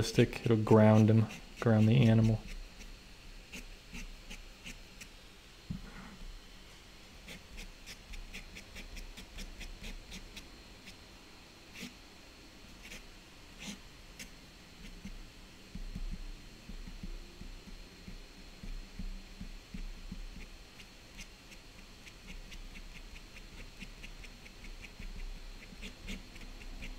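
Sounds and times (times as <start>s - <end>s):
ink pen scratching on paper: 3.5s - 4.8s, 7.3s - 10.2s, 12.8s - 13.0s, 13.6s - 13.8s, 19.7s - 26.9s.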